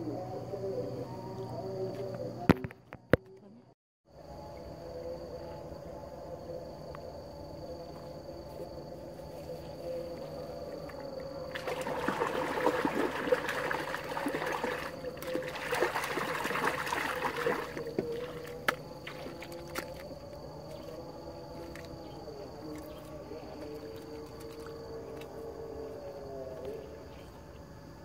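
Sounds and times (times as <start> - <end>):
hands splashing in water: 11.5 - 20.0.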